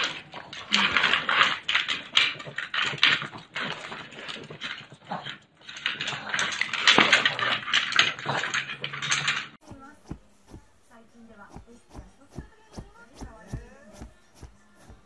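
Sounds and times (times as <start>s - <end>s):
dog sniffing and snuffling: 9.6s - 15.0s.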